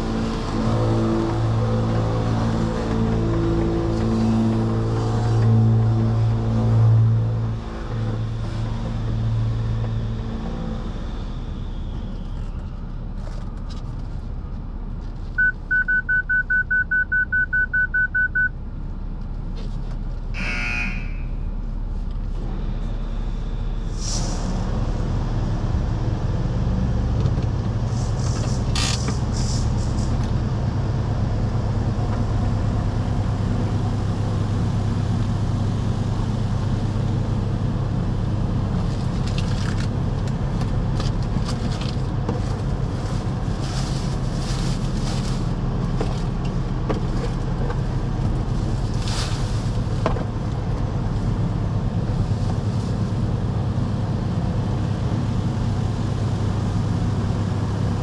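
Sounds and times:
low machinery hum: 0.0s - 58.0s
high electronic beeps: 15.4s - 18.5s.

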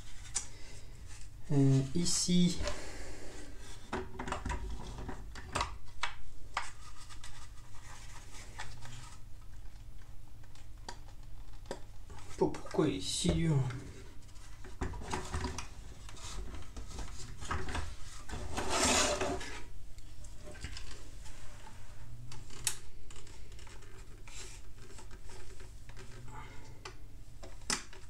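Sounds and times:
plastic parts rubbing and scraping: 6.6s - 9.3s, 13.7s - 19.7s, 20.4s - 26.3s.

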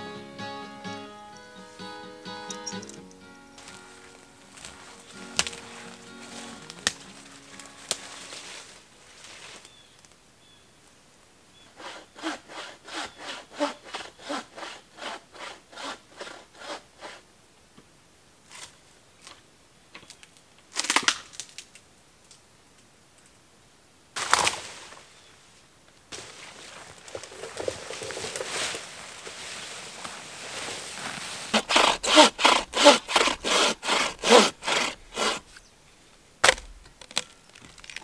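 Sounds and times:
wood cracking: 2.8s - 8.8s, 20.0s - 22.4s, 24.2s - 25.0s, 31.1s - 35.6s, 36.4s - 38.0s
saw cutting wood: 4.5s - 8.6s, 11.8s - 17.2s, 31.5s - 35.5s.

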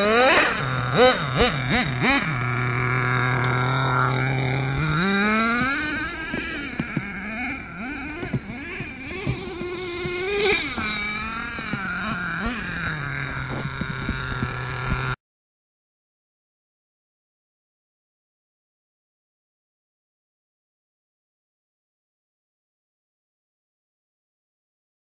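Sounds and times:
model truck engine revving: 0.0s - 15.2s.

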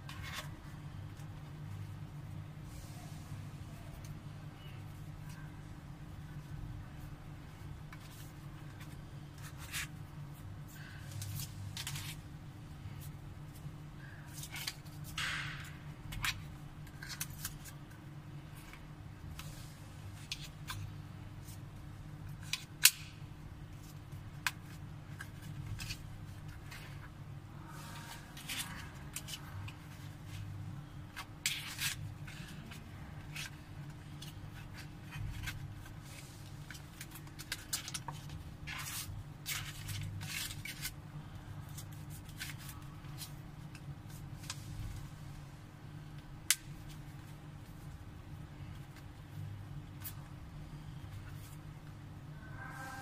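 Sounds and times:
low hum: 47.9s - 53.0s.

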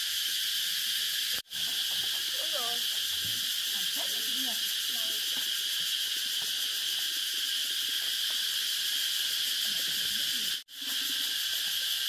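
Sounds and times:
insect chorus drone: 0.0s - 12.0s.

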